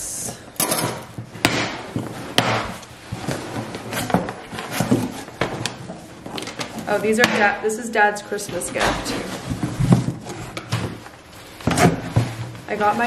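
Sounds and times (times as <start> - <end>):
packaging rustling: 0.9 - 7.2, 8.3 - 13.0.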